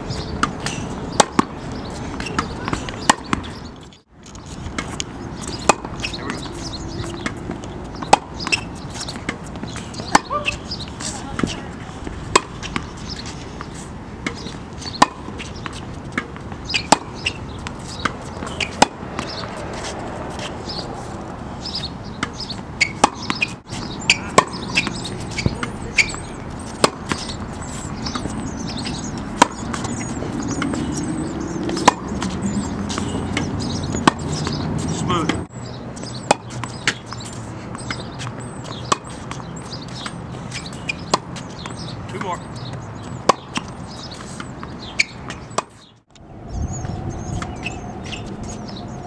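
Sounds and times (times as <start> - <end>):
ball bounces: 0.4 - 1.5, 22.2 - 35.4
tennis racket hitting ball: 0.4 - 3.6, 4.8 - 21.0, 21.7 - 35.5, 36.1 - 42.4, 43.2 - 45.9.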